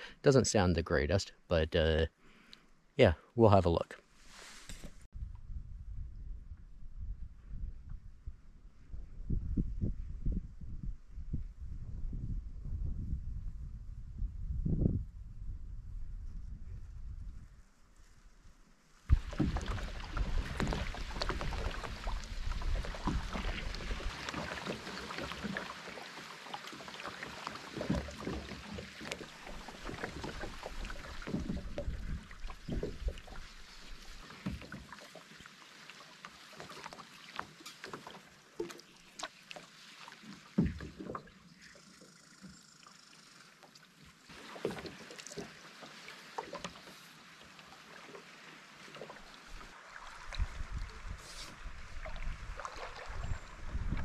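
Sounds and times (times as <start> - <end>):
paddle strokes in water: 4.2 - 5.1, 17.9 - 54.0
splashing and dripping water: 19.0 - 54.0.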